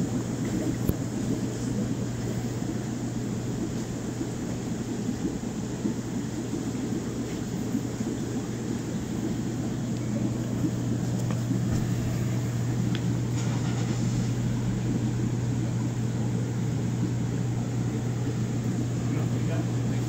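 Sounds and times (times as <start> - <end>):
aquarium pumps humming: 0.0 - 20.0.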